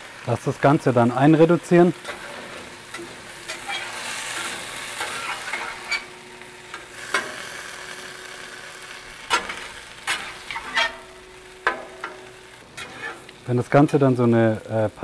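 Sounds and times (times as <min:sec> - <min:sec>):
sauce sizzling in a pan: 0:00.0 - 0:15.0
metal spatula scraping a pan: 0:01.9 - 0:13.4.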